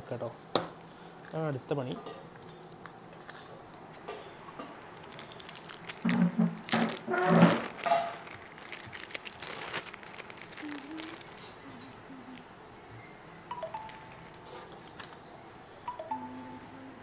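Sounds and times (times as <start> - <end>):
plastic film crinkling: 2.4 - 4.0, 4.8 - 11.6, 13.8 - 15.3.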